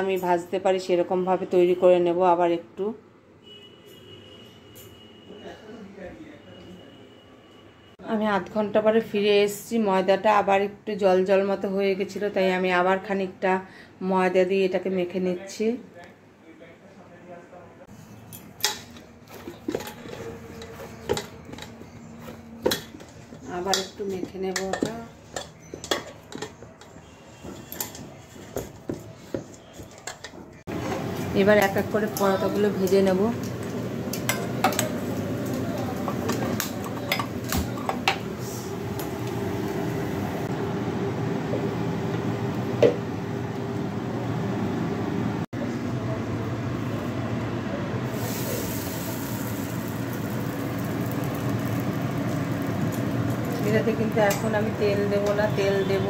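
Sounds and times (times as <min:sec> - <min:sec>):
gas burner rushing: 0:30.7 - 0:45.4, 0:46.6 - 0:55.9
dough sizzling on hot pan: 0:48.1 - 0:54.7.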